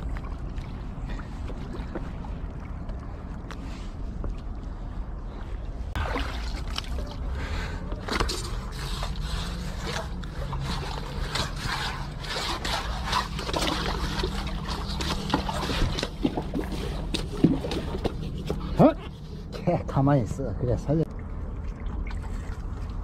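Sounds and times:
low steady hum: 0.0s - 23.0s
wet scraping and crackling: 5.9s - 7.3s, 7.9s - 19.6s.

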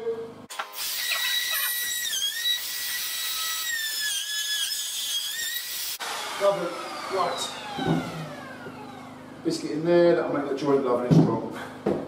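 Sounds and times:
router whining: 0.5s - 9.5s.

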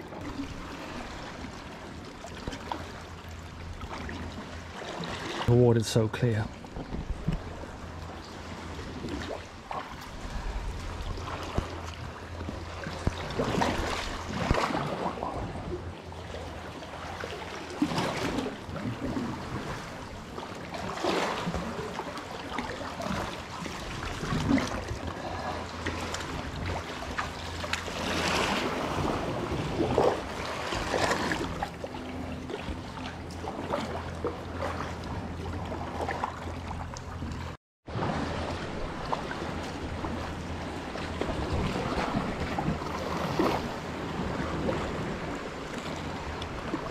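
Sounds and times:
steady low rumble: 5.7s - 14.6s
paddle splashing in water: 6.5s - 46.9s.

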